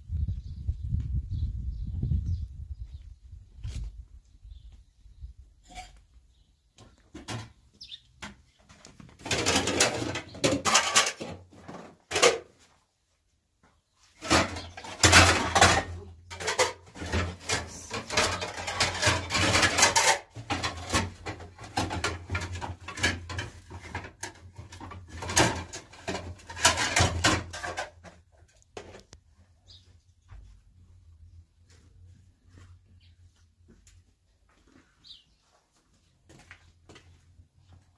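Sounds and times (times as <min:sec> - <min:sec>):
dishes clattering on shelves: 0:09.2 - 0:12.5, 0:14.2 - 0:28.2.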